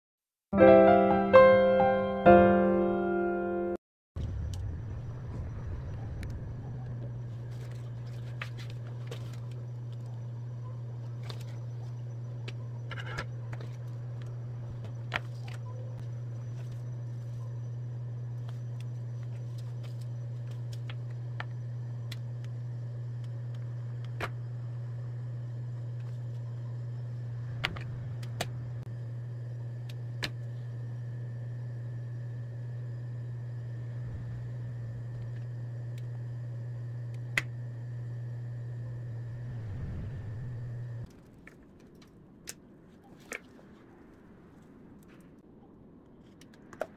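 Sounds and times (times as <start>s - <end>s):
low machine hum: 0.6s - 46.8s.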